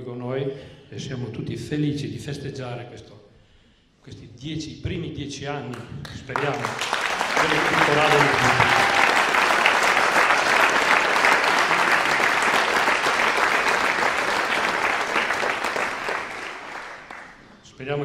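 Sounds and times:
audience applauding: 6.1 - 17.5.

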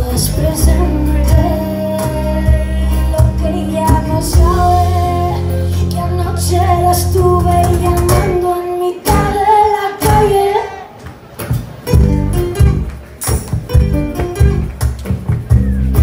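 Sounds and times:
woman singing: 0.0 - 10.9
acoustic guitar strumming: 11.8 - 14.9.

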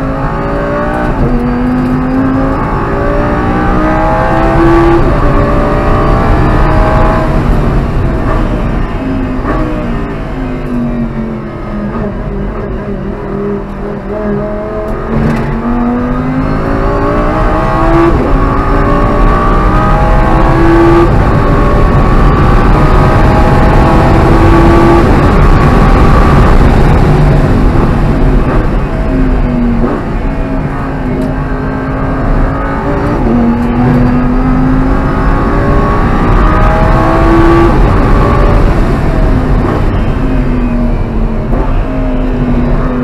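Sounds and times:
car engine accelerating: 0.0 - 43.0
engine upshifts: 0.0 - 43.0.

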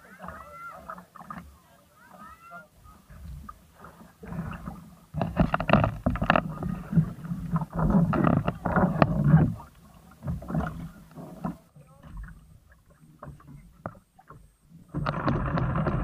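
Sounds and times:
knocks and rubbing on boat hull: 4.3 - 11.6.

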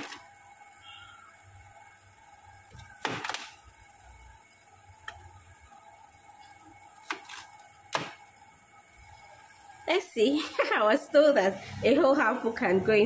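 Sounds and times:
knife cutting melon on tray: 7.0 - 8.2.

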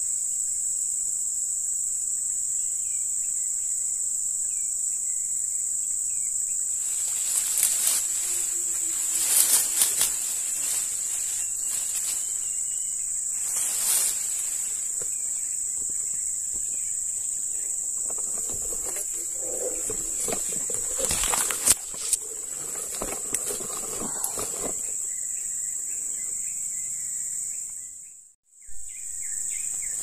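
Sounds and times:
high-pitched insect drone: 0.0 - 27.7
rustling or scraping: 6.7 - 25.2.

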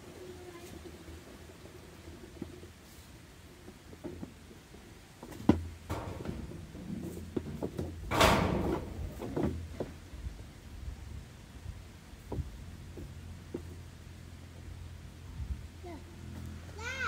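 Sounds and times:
knocks of objects handled: 5.2 - 10.0.

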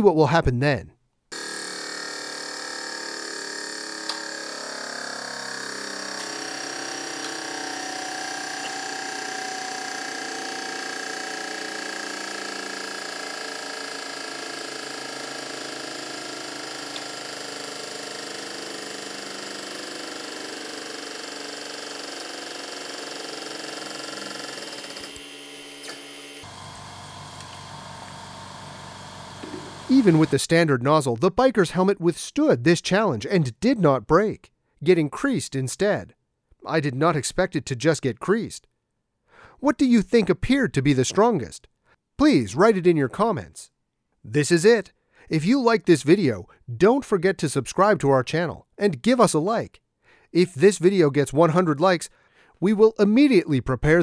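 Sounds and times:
hydraulic pump running: 1.3 - 30.4.

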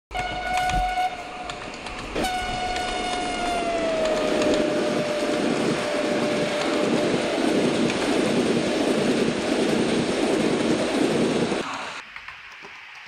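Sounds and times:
train horn blowing: 0.1 - 7.1
running train rumble: 0.1 - 12.0.

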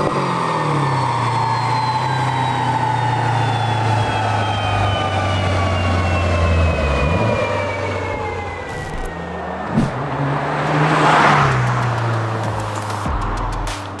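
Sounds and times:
turbo whine: 0.0 - 10.1
car driving by: 5.4 - 13.9.

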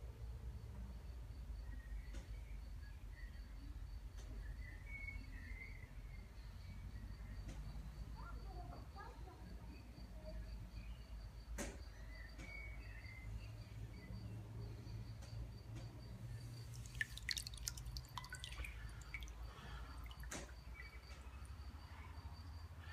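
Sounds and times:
small sharp drips and clicks: 15.2 - 22.0
water dripping and trickling: 16.3 - 21.7.

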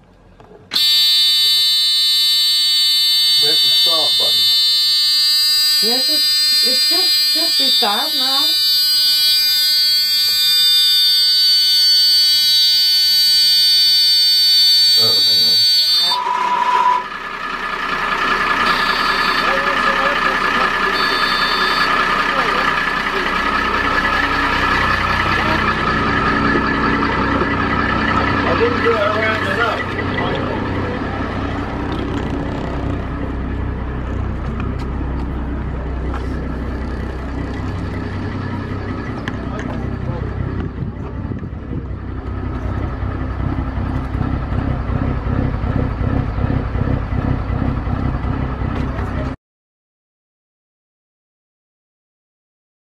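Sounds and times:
shrill electronic alarm buzzer: 0.7 - 17.3, 18.4 - 31.9
boat engine idling: 17.0 - 49.4.

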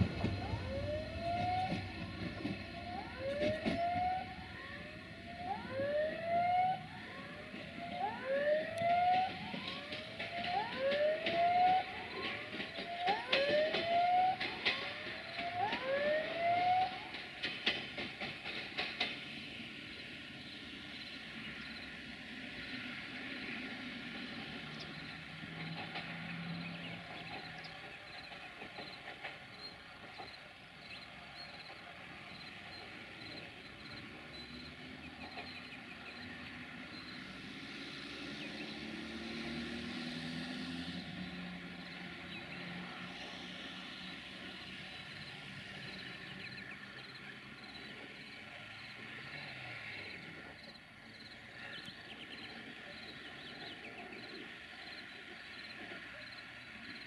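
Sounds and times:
sharp rail clicks: 0.0 - 4.6, 7.6 - 19.8, 24.1 - 30.6
rising whistle-like tones: 0.0 - 17.5
train rumbling away: 0.0 - 57.0
cars driving over crossing: 33.8 - 51.5.

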